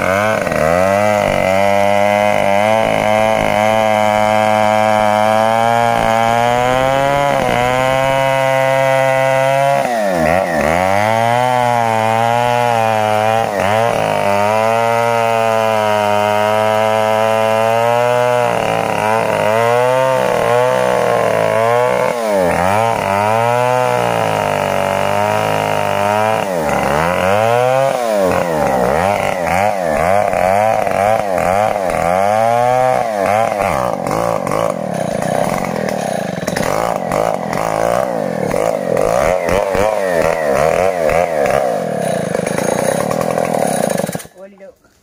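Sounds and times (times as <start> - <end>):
chainsaw cutting wood: 0.0 - 45.0.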